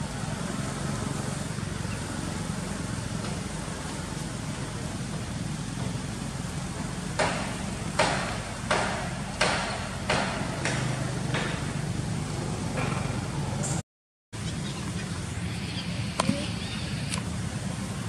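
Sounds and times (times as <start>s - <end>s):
low engine hum: 0.0s - 9.4s, 14.4s - 18.0s.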